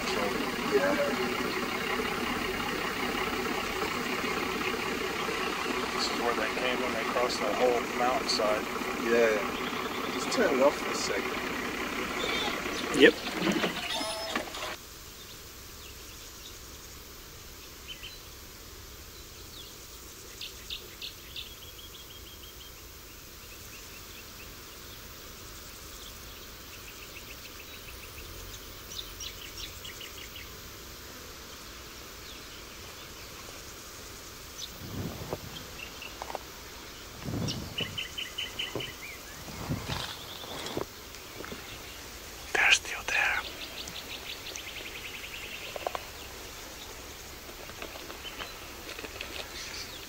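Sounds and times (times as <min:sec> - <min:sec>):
birds chirping and trilling: 0:00.0 - 0:14.8, 0:25.8 - 0:30.5, 0:34.2 - 0:50.0
insects hissing: 0:00.0 - 0:50.0
breeze: 0:34.5 - 0:50.0
low soft thuds: 0:34.8 - 0:35.7, 0:37.2 - 0:40.8.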